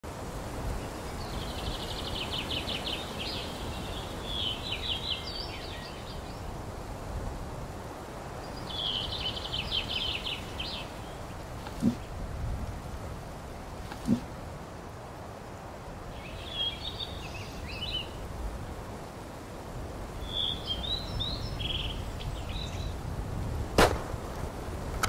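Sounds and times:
songbird trilling: 0:16.2 - 0:18.2.

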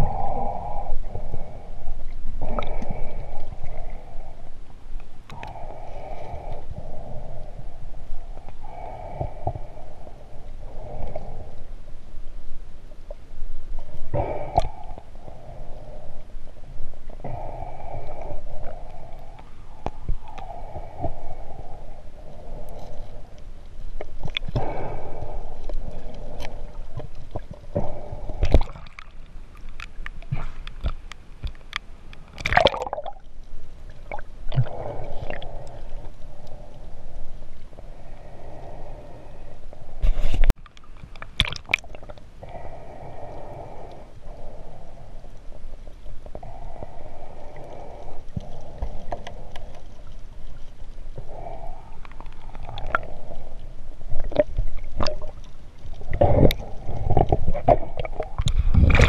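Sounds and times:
underwater gurgling and bubbling: 0:00.0 - 0:04.5, 0:24.2 - 0:29.2, 0:32.4 - 0:40.0, 0:41.3 - 0:59.0.

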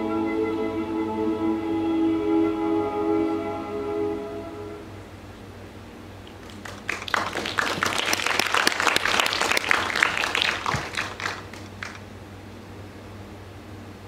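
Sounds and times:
audience applauding: 0:06.3 - 0:12.1.

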